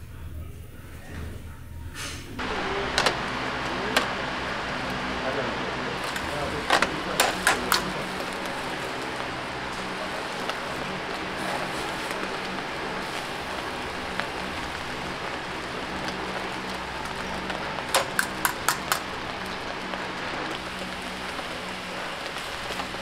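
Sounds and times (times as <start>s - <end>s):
low hum: 2.4s - 23.0s
meat sizzling on a grill: 2.4s - 23.0s
metal tongs clacking: 6.1s - 8.0s, 17.9s - 19.1s.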